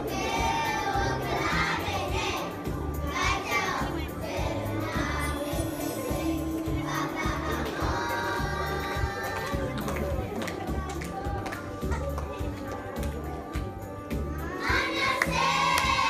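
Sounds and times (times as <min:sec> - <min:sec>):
children singing together: 0:00.0 - 0:09.8, 0:14.3 - 0:16.0.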